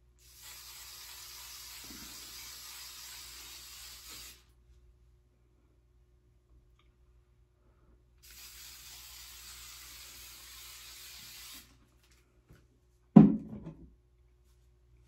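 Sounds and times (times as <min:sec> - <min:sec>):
aerosol spray hissing: 0:00.2 - 0:04.5, 0:08.2 - 0:11.8
loud thump: 0:13.2 - 0:13.8.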